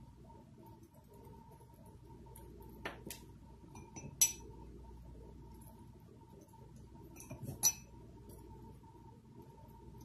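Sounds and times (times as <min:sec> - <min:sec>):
faint steady hum: 0:00.0 - 0:10.0
brush clinking against glass bowl: 0:03.7 - 0:04.5, 0:07.1 - 0:08.0.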